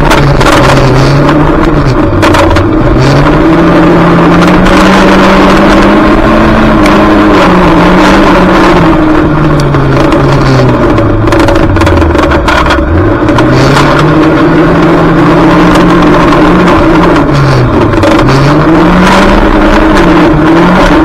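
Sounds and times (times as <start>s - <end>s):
rattling and knocking: 0.0s - 3.4s, 9.5s - 14.4s
car engine racing: 0.0s - 21.0s.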